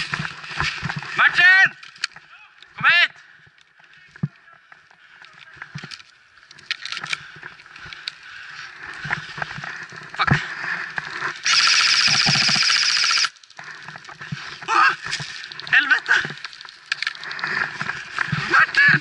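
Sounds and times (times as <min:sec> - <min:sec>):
airsoft gun full-auto burst: 0:11.4 - 0:13.3.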